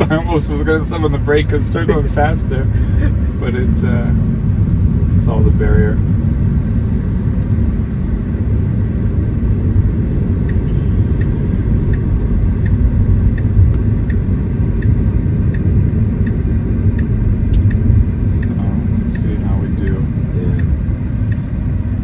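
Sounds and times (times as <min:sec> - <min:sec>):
faint regular tick: 0:10.4 - 0:17.8, 0:20.5 - 0:21.5.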